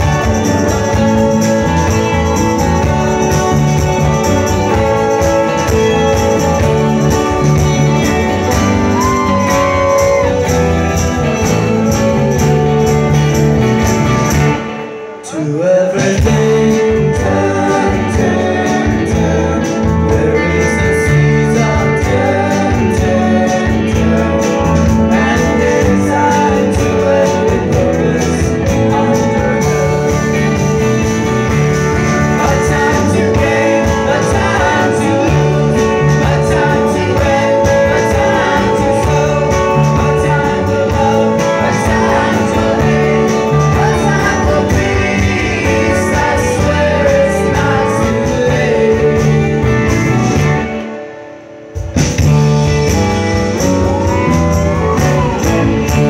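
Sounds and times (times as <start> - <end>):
voices singing together: 0.0 - 50.9
country-folk band playing: 0.0 - 56.0.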